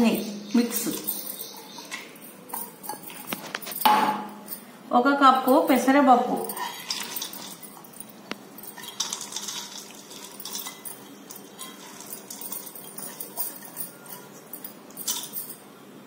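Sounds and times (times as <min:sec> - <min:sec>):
lentils pattering into a steel bowl: 0:06.5 - 0:15.6.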